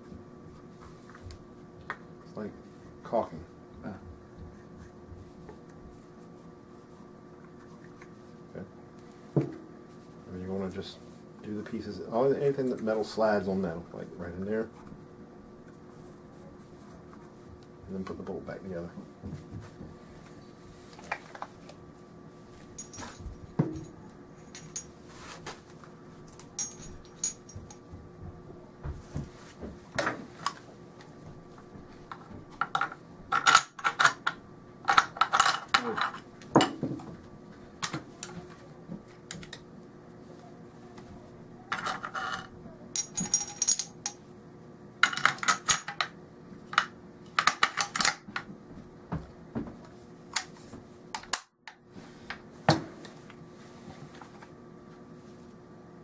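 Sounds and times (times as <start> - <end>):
rifle parts clicking and clinking: 26.4 - 27.8, 41.8 - 44.2.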